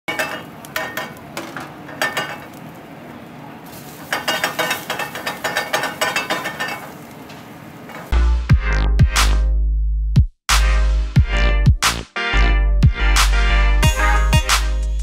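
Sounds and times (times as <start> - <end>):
metal ladle clanking on pan: 0.1 - 2.6, 4.0 - 7.0
food sizzling: 0.1 - 8.2.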